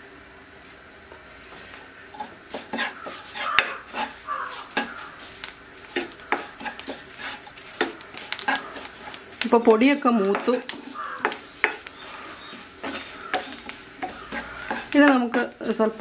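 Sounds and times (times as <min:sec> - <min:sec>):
wooden spoon scraping a pan: 0:01.5 - 0:16.0
spoon knocking on pan: 0:02.6 - 0:05.0, 0:05.9 - 0:07.0, 0:07.8 - 0:08.9, 0:09.6 - 0:16.0.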